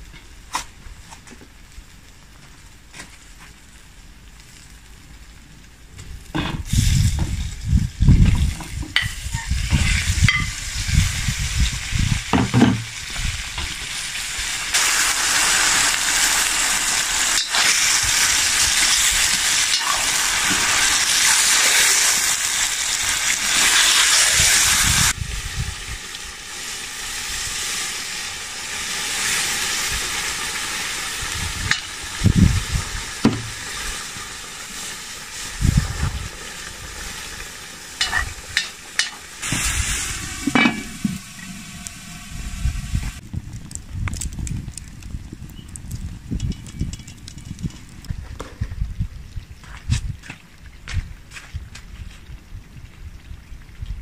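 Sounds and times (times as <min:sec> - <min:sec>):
chicken sizzling in hot fat: 0:02.6 - 0:43.2.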